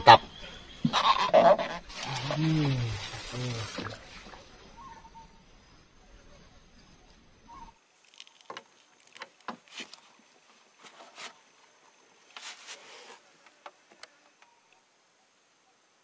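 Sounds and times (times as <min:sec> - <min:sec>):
insects trilling: 0:00.0 - 0:15.8.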